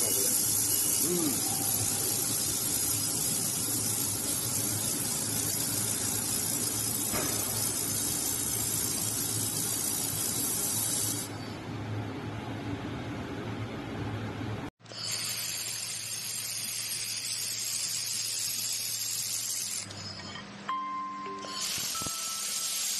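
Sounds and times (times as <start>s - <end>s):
laser welder high hiss: 0.0s - 11.4s, 15.0s - 20.0s, 21.4s - 22.9s.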